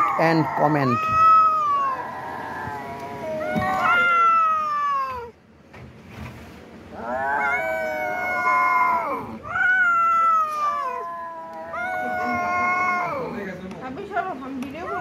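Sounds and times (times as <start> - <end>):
kittens yowling: 0.0 - 5.4, 6.9 - 13.5.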